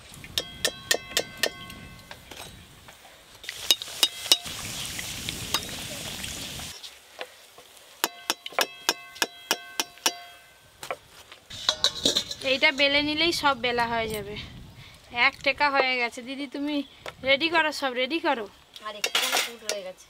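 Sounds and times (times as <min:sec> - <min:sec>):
food deep-frying in oil: 0:03.4 - 0:08.8.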